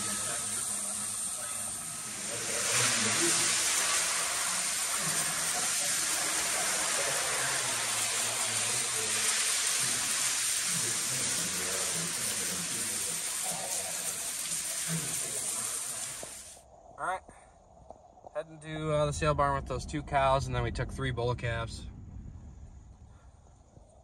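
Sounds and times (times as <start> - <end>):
hose spray gun hissing: 0.0 - 16.6.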